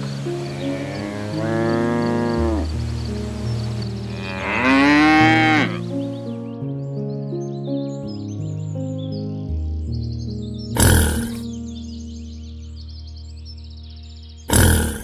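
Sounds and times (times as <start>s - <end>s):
soft music with held notes: 0.0s - 15.0s
cow mooing: 0.5s - 2.7s, 4.1s - 5.8s, 10.8s - 11.4s.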